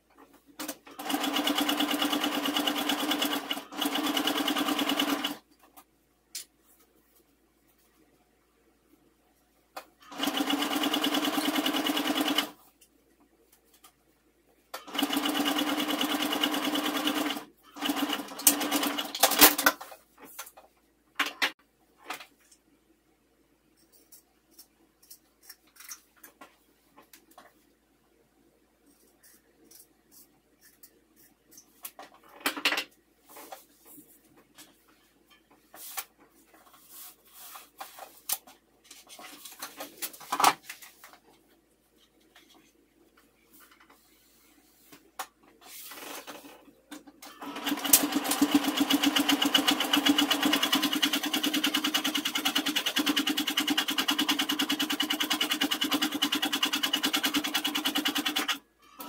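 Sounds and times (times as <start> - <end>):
sewing machine stitching: 0.6 - 5.4, 10.0 - 12.6, 14.8 - 19.6, 47.2 - 59.0.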